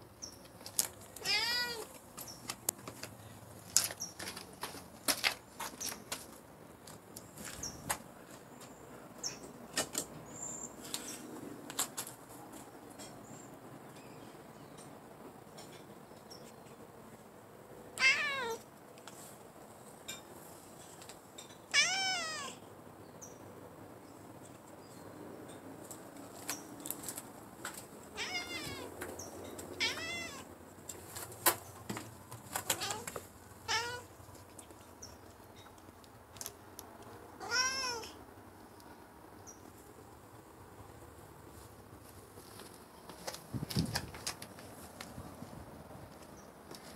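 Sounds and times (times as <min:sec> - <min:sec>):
cat meowing: 0:01.2 - 0:01.9, 0:18.0 - 0:18.6, 0:21.7 - 0:22.6, 0:28.2 - 0:29.0, 0:29.8 - 0:30.5, 0:32.7 - 0:34.1, 0:37.4 - 0:38.2.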